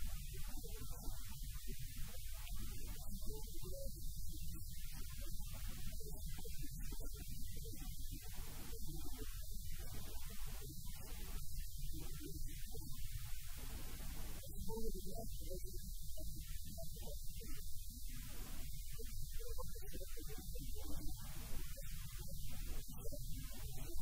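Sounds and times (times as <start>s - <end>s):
faint muffled sounds: 0.0s - 24.0s.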